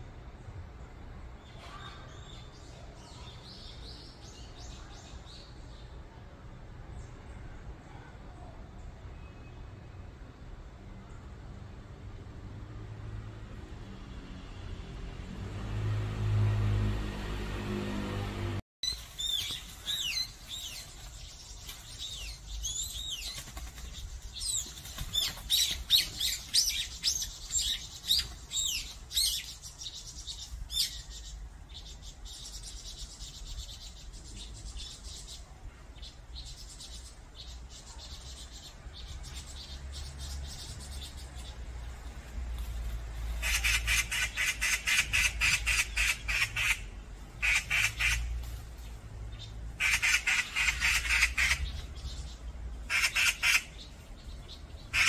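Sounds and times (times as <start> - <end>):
songbirds chirping and whistling: 0.8 - 6.2, 18.8 - 55.0
fast pulsing bird chatter: 18.9 - 35.4, 43.2 - 55.0.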